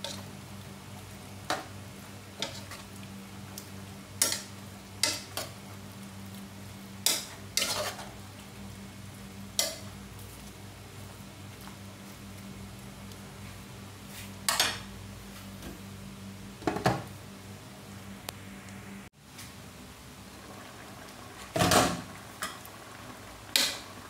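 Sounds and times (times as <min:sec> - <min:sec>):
spoon scraping against pot: 0:07.0 - 0:08.1.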